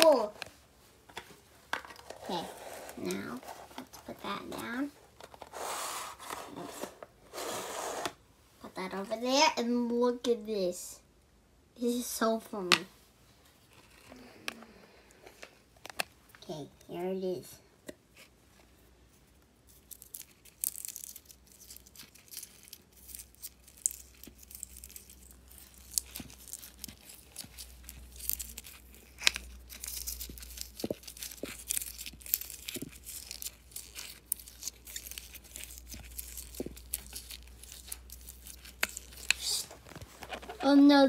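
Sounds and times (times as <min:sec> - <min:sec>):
slime crackling and popping: 0:19.7 - 0:40.6.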